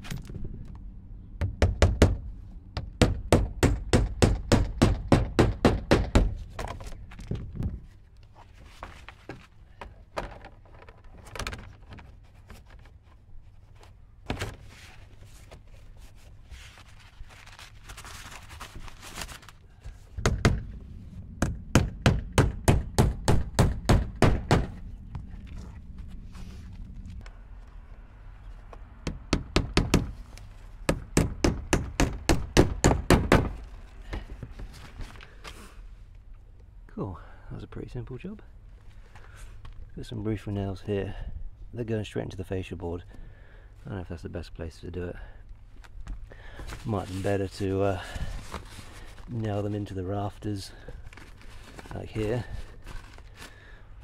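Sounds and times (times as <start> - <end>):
hammer striking nails: 2.8 - 6.4, 20.2 - 20.7, 21.4 - 24.8, 29.0 - 30.1, 30.9 - 33.6.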